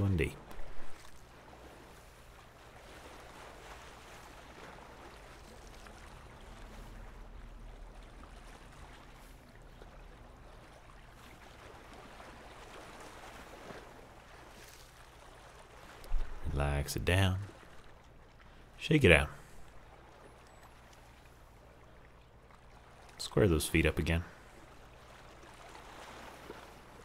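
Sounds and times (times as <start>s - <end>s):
waves lapping on rocky shore: 0.0s - 16.9s, 24.3s - 27.0s.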